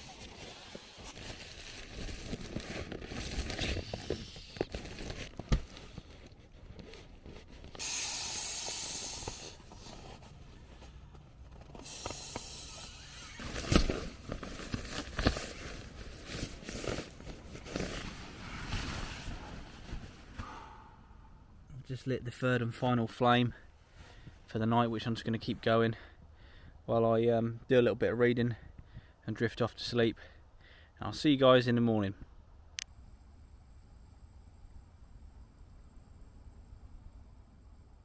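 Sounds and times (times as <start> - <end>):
nylon gear rustling: 0.0 - 7.8, 8.6 - 20.4
air rushing into inflatable: 7.8 - 9.9, 11.8 - 13.6.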